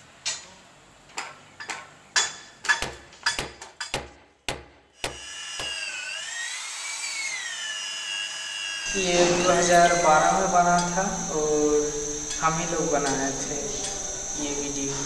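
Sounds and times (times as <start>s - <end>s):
electric drill whining: 5.1s - 15.0s.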